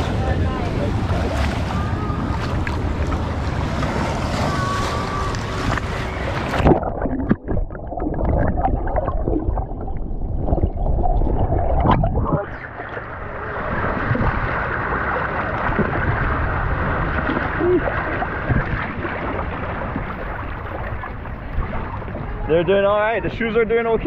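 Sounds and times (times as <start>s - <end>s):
sea water sloshing: 0.0s - 23.1s
underwater bubbling and knocks: 4.6s - 22.4s.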